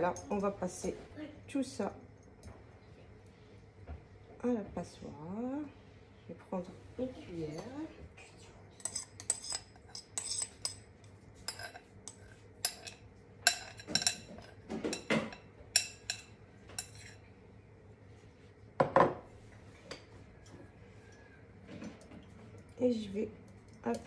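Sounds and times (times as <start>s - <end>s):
metal spoon scraping glass bowl: 8.8s - 10.8s, 11.5s - 14.3s, 16.8s - 17.2s.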